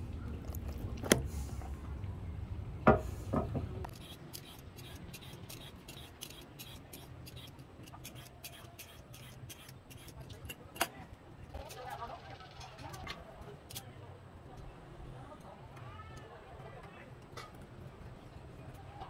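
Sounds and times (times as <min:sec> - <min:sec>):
peeler scraping carrot: 0:03.9 - 0:10.6.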